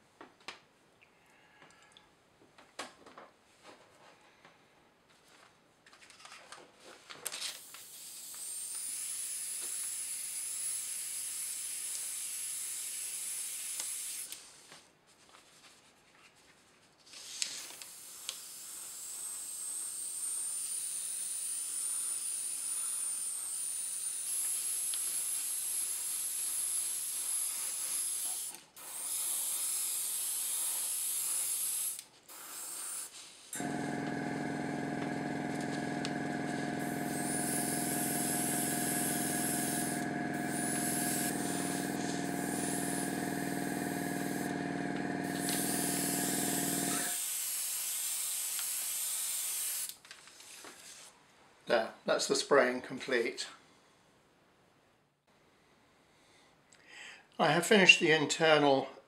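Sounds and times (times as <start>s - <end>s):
airbrush hissing with high whistle: 7.8s - 14.3s, 17.9s - 33.1s, 36.8s - 44.5s, 45.2s - 49.9s
compressor motor humming: 33.6s - 47.2s.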